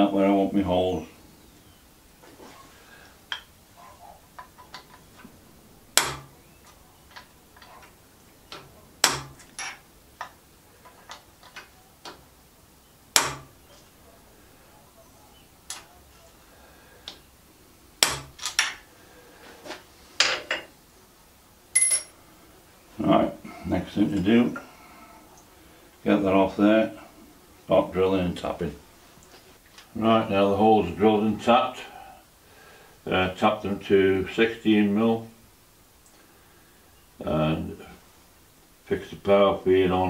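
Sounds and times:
hammer striking metal punch: 0:06.0 - 0:06.3, 0:09.0 - 0:09.4, 0:13.2 - 0:13.5, 0:18.0 - 0:18.4
light metal taps and clinks: 0:21.8 - 0:22.2.

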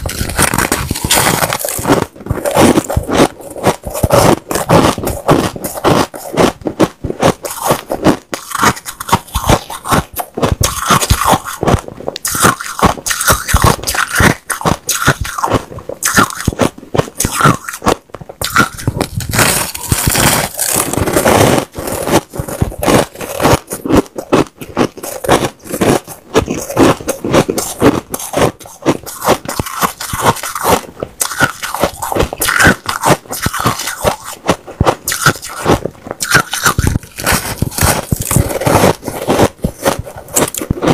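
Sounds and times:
ice crunching while chewed: 0:00.0 - 0:40.9.

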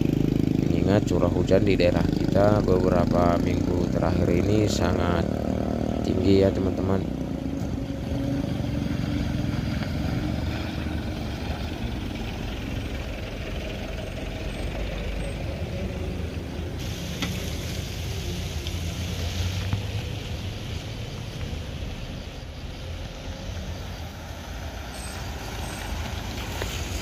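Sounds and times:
motorcycle driving past: 0:00.0 - 0:27.0
road traffic engine rumble: 0:00.0 - 0:27.0
hiss: 0:16.8 - 0:27.0.

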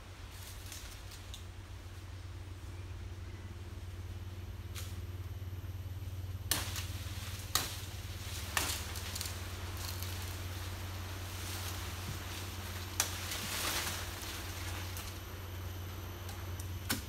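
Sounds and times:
blade chopping palm stems: 0:06.5 - 0:10.4, 0:11.4 - 0:15.2, 0:16.2 - 0:17.0.

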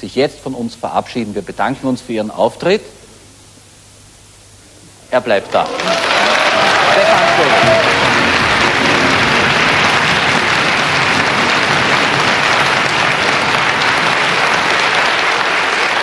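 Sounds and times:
studio audience applauding: 0:05.2 - 0:16.0.

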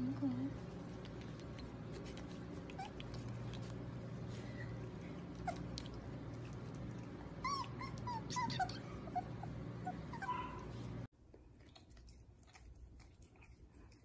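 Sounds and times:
puppy whimpering squeaks: 0:07.4 - 0:10.7.

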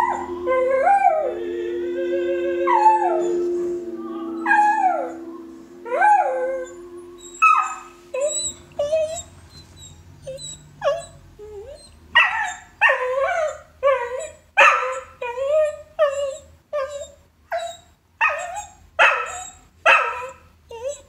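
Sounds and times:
dog howling: 0:00.0 - 0:09.2
sustained music notes: 0:00.0 - 0:09.5
dog yips and whimpers: 0:16.0 - 0:21.0.

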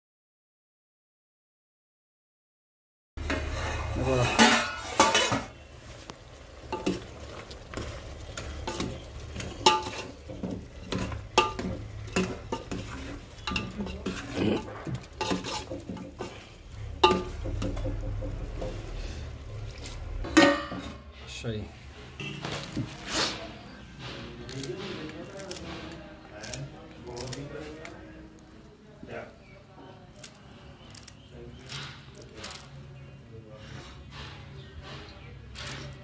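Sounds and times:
frying sizzle: 0:03.2 - 0:20.9
metal ladle scraping a pot: 0:03.2 - 0:21.3.

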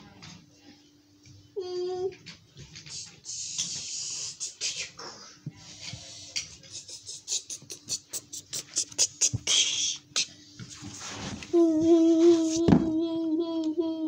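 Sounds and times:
faint steady hum: 0:00.0 - 0:14.0
beatboxing mouth clicks and hisses: 0:02.8 - 0:05.2, 0:06.4 - 0:10.4.

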